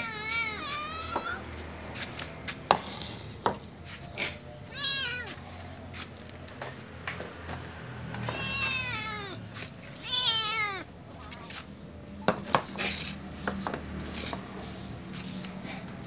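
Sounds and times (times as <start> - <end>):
cats meowing: 0.0 - 1.7, 4.2 - 6.1, 8.0 - 11.8.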